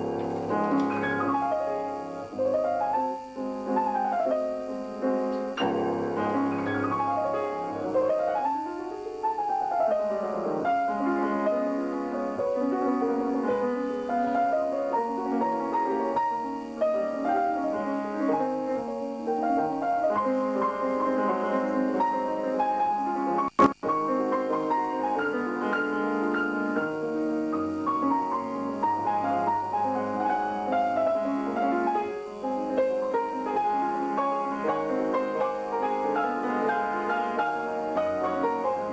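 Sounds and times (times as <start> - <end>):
solo grand piano: 0.0 - 38.9.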